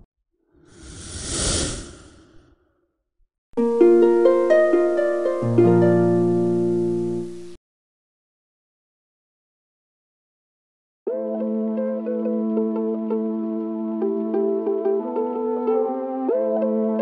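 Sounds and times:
whoosh sound effect: 0.6 - 2.6
plucked harp melody: 3.6 - 7.4.

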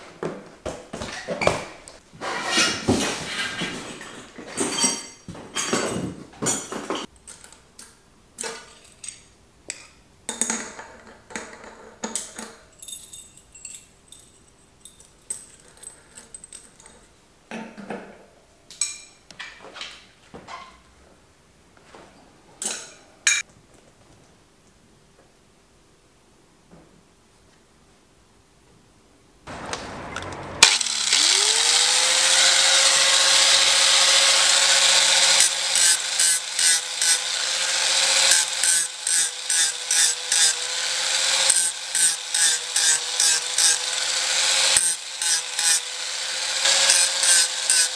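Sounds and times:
metal bicycle parts clinking: 3.9 - 7.6, 12.1 - 17.2.

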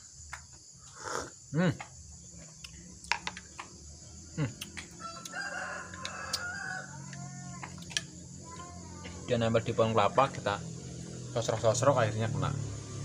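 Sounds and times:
rooster crowing: 4.9 - 7.6.

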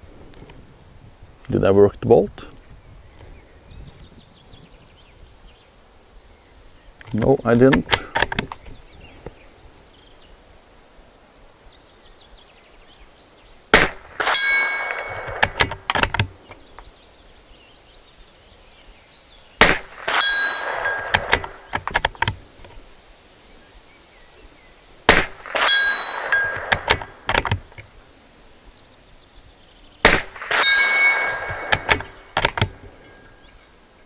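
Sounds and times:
suppressed rifle shots: 13.7 - 16.4, 19.6 - 22.4, 25.1 - 27.8, 30.0 - 32.8
metallic ring of steel target: 14.2 - 15.7, 19.9 - 21.6, 25.4 - 27.1, 30.4 - 33.4
rifle bolt clicks: 31.4 - 32.8.

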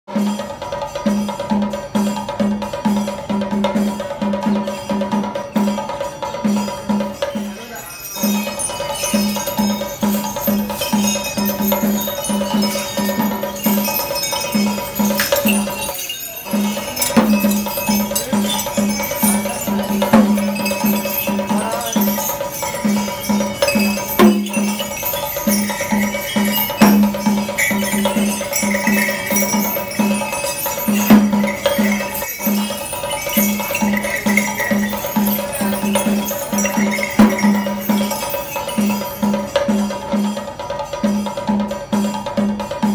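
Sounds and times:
cymbals or bells ringing: 0.1 - 42.9
drums beating steady rhythm: 0.1 - 42.9.

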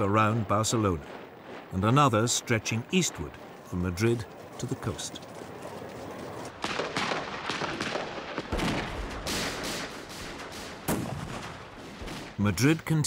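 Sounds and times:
gunfire shots: 6.5 - 12.4.

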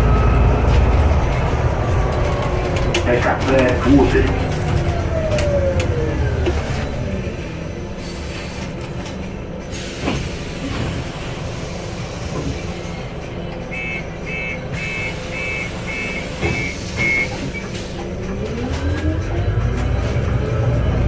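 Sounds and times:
bus engine running: 0.0 - 21.0
road noise: 0.0 - 21.0
short electronic beeps: 13.7 - 17.4.

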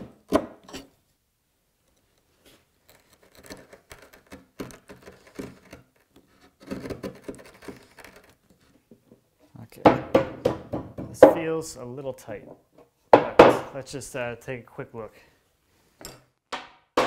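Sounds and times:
chisel scraping wood: 2.8 - 8.9.

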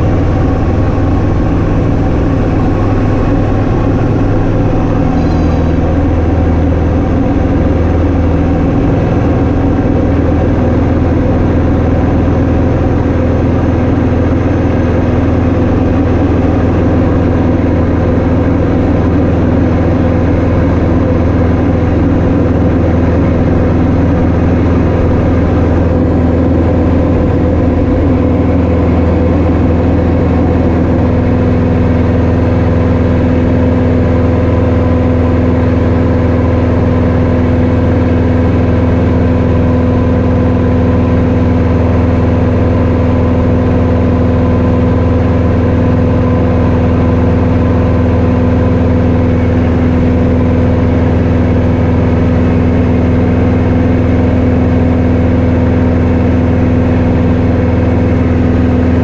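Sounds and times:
propeller aircraft engine drone: 0.0 - 59.0.

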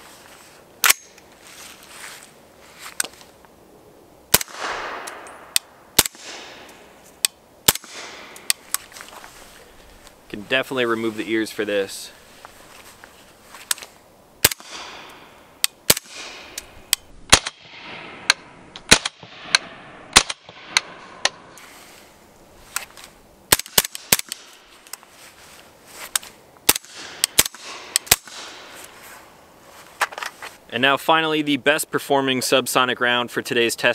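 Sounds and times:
suppressed rifle shots: 4.3 - 6.8, 7.6 - 8.7, 14.4 - 16.6, 17.3 - 21.4, 23.5 - 24.6, 26.7 - 28.8.

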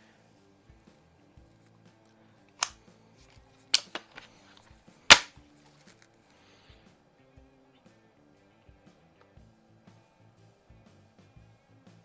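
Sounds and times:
rifle action clicks: 2.5 - 2.8, 3.7 - 4.3, 5.1 - 5.4
rifle charging snap: 2.5 - 2.9, 3.7 - 4.3, 5.1 - 5.4.

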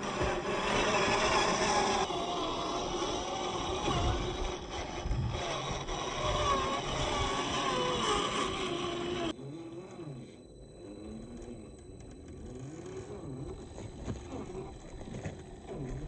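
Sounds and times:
electric motor whining: 0.0 - 16.0
tyre noise: 0.0 - 16.0.

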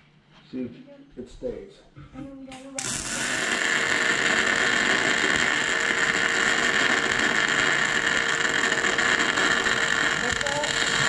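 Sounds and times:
welder arc crackling: 2.6 - 11.0.

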